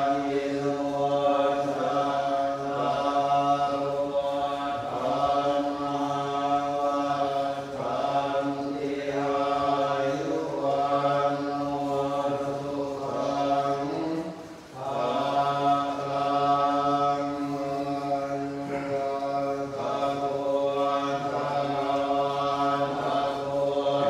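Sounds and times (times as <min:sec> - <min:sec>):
voices chanting in a drone: 0:00.0 - 0:24.0.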